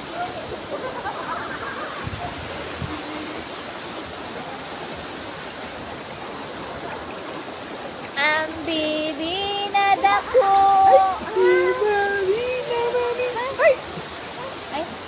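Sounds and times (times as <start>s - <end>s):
waterfall rushing: 0.0s - 15.0s
high voice singing long notes: 8.2s - 13.6s.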